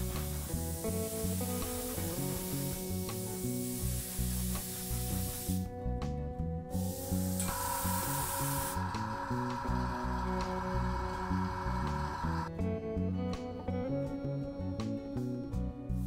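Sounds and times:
airbrush spraying hiss: 0.0s - 5.7s, 6.7s - 12.5s
background music: 0.0s - 16.0s.

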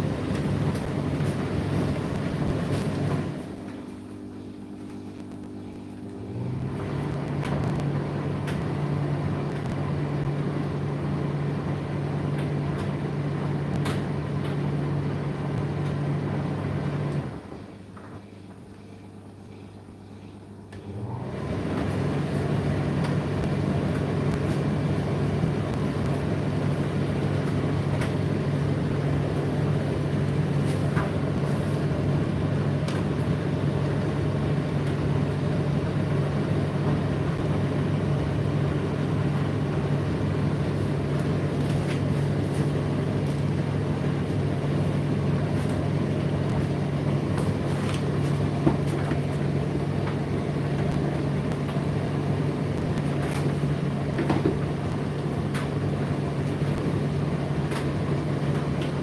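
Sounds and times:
tumble dryer running: 0.0s - 19.3s, 20.6s - 59.0s
faint clicks and knocks inside dryer: 21.6s - 59.0s.

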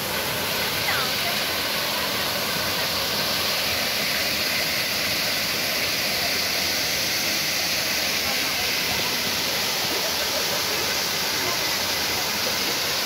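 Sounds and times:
small waterfall rushing: 0.0s - 13.0s.

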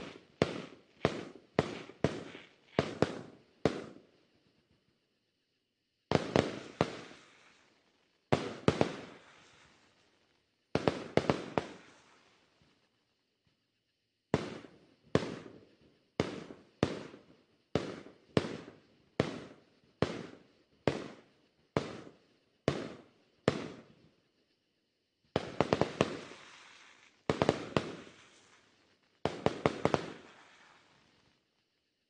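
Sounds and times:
firework booms with rumbling echo: 0.0s - 4.0s, 6.1s - 7.5s, 8.3s - 9.8s, 10.7s - 11.9s, 14.3s - 15.6s, 16.2s - 24.0s, 25.3s - 26.7s, 27.3s - 28.5s, 29.2s - 30.9s
rapid firework cracks: 0.0s - 4.1s, 6.1s - 12.8s, 14.3s - 24.2s, 25.3s - 31.6s.

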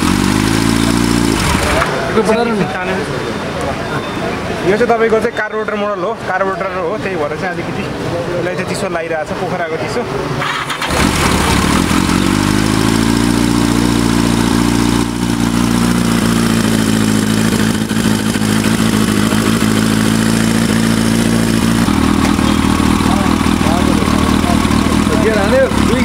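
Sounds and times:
motorcycle engine starting and idling: 0.0s - 2.5s, 10.4s - 26.0s.

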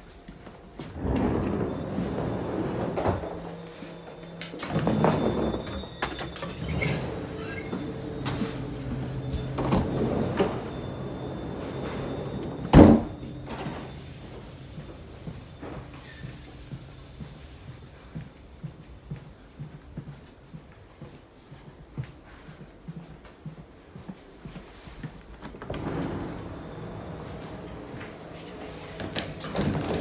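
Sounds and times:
low hum in coach: 0.0s - 20.3s, 25.1s - 30.0s
sliding doors opening and closing: 0.6s - 17.8s, 25.2s - 30.0s.

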